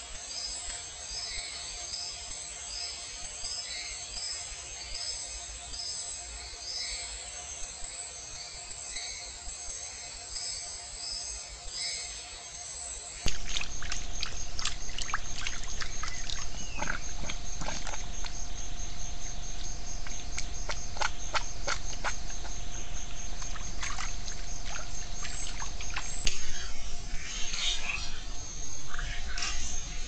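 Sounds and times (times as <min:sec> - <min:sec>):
steady low rumble: 0:13.3 - 0:30.0.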